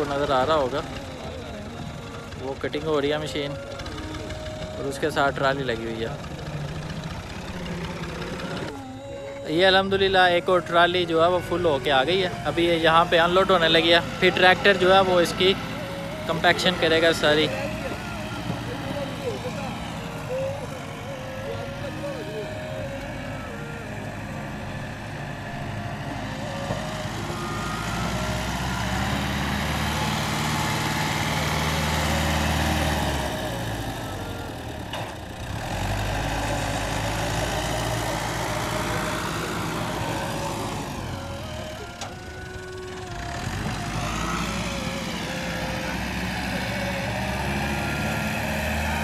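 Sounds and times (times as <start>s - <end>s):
diesel tractor engine running: 0.0s - 49.0s.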